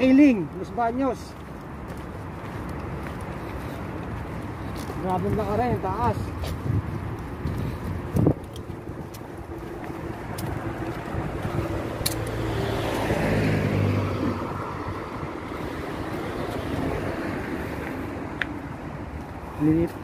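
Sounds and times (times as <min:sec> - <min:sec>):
car passing by: 0:09.6 - 0:19.8.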